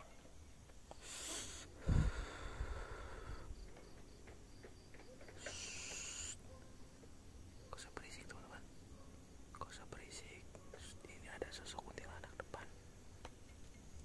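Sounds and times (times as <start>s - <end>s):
hissy breaths: 0.9s - 4.1s, 5.2s - 6.6s.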